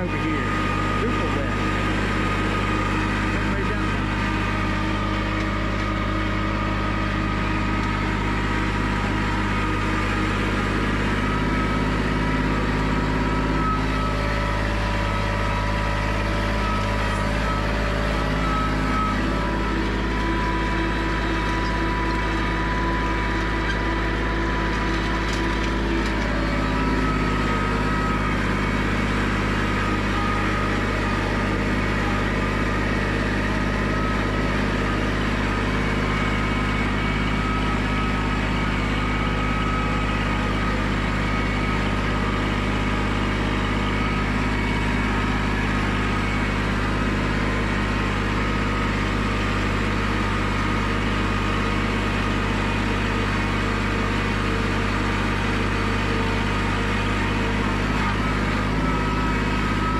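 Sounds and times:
diesel tractor engine running: 0.0 - 59.9.

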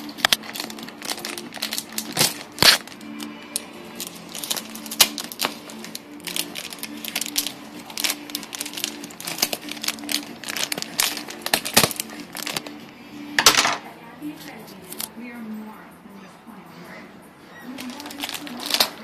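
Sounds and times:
scissors snipping plastic: 0.0 - 12.7, 17.8 - 19.0
plastic packaging crinkling: 0.0 - 12.9, 14.7 - 15.1, 17.6 - 19.0.

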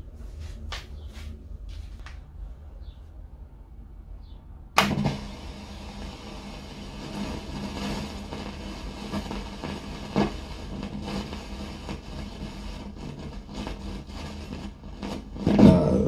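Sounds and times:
steady low hum: 0.0 - 16.0
radio crackles: 4.8 - 16.0
radio static hiss: 4.8 - 16.0.

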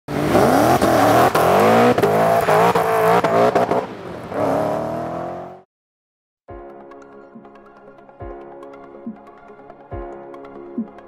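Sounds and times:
car engine revving hard: 0.1 - 5.6.

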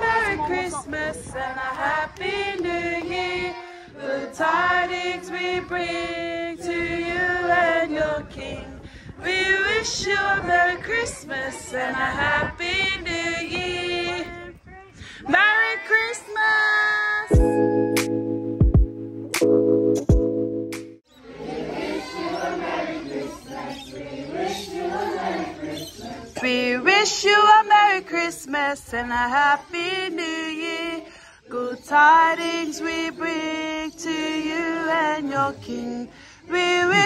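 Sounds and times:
group singing a carol unaccompanied: 0.0 - 14.6, 15.3 - 17.3, 21.1 - 37.0
music with long held notes: 17.4 - 21.0.

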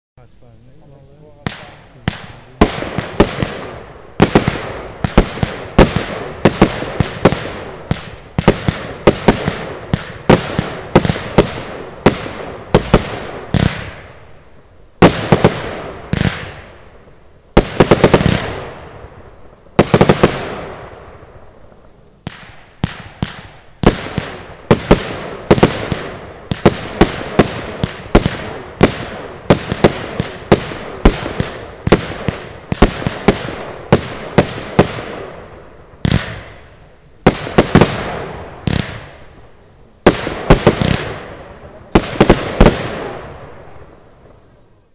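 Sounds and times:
firework hiss: 0.7 - 44.9
firework cake shots: 1.3 - 14.2, 36.0 - 39.4, 40.0 - 44.0.

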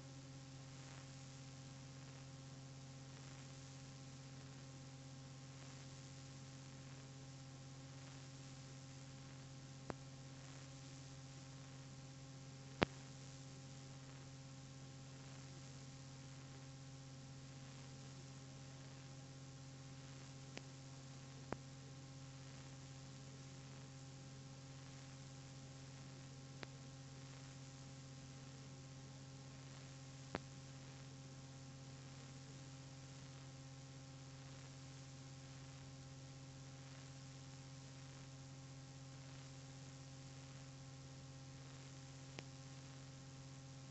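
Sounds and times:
faint electrical hum: 0.0 - 43.9.

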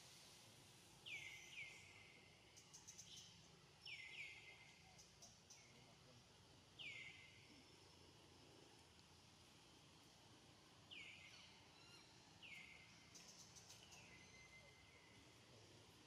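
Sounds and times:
background hiss: 0.0 - 16.0
bird chirps: 10.9 - 15.2.

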